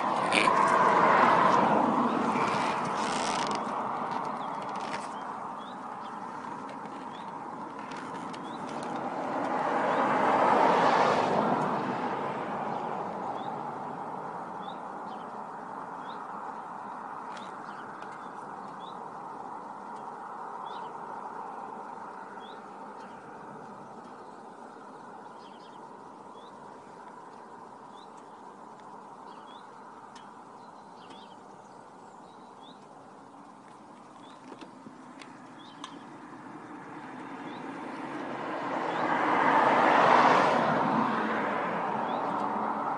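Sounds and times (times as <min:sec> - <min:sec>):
car driving past: 0:00.0 - 0:04.2, 0:08.3 - 0:15.2, 0:35.6 - 0:42.9.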